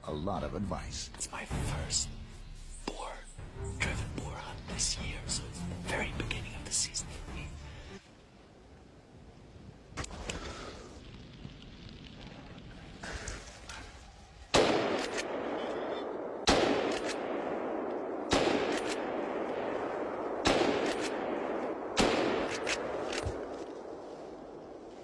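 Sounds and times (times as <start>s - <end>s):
rifle shots with long echo: 14.4s - 24.9s.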